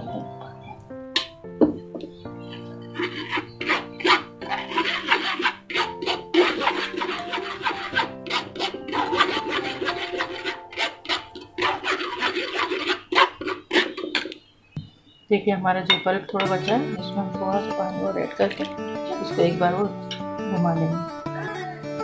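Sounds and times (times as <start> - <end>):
background music: 0.0 - 13.0, 15.6 - 22.0
spoon scraping metal mesh strainer: 2.4 - 14.4.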